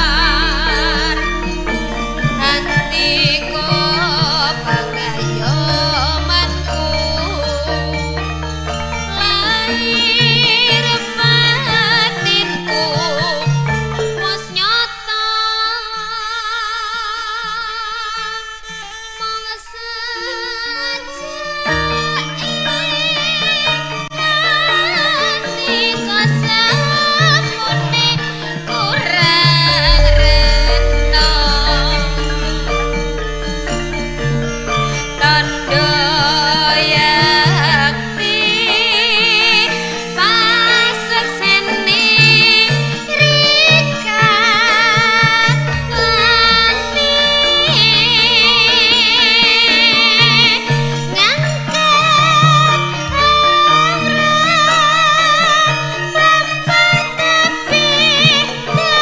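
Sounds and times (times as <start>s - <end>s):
soft bass notes: 0.0s - 11.8s, 29.2s - 38.9s, 45.3s - 50.8s
long held vibrato note: 0.0s - 14.0s, 29.0s - 41.9s, 45.2s - 51.0s
steady music backing: 0.0s - 14.5s, 28.8s - 41.9s, 45.0s - 51.2s.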